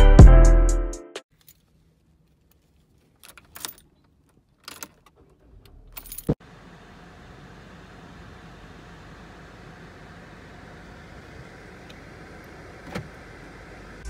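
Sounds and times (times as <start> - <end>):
car humming: 5.1 - 14.0
key ring jangling: 5.9 - 6.4.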